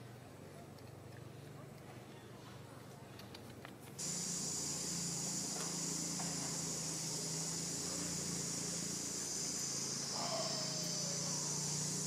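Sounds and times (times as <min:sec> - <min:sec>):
faint low hum: 0:00.0 - 0:12.0
insect chorus buzzing: 0:04.0 - 0:12.0.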